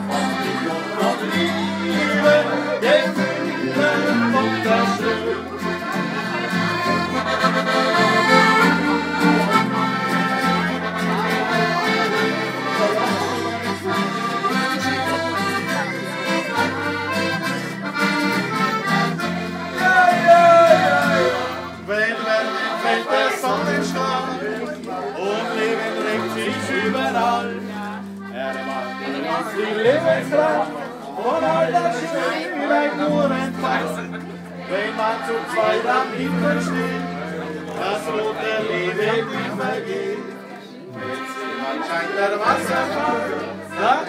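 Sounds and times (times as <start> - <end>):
accordion playing folk melody: 0.0 - 44.0.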